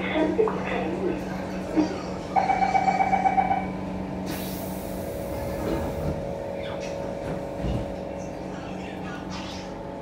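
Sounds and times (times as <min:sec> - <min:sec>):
train low hum: 0:00.0 - 0:10.0
compressed air hiss: 0:04.2 - 0:05.2.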